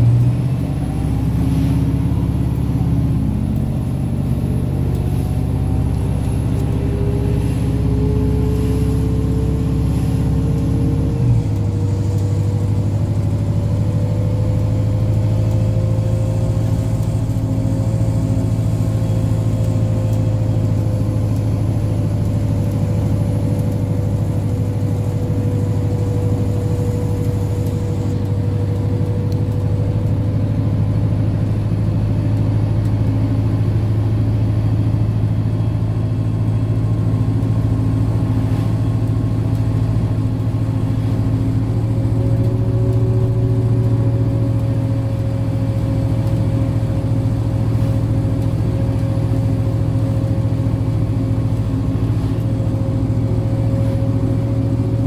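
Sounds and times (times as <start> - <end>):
thin rising whine: 0.0 - 32.0
bus engine drone: 0.0 - 55.0.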